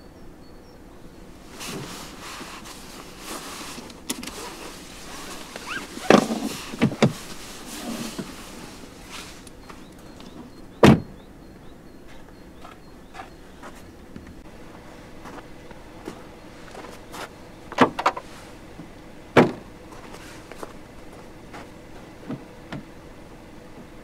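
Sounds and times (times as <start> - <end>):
rustling: 1.4 - 10.5.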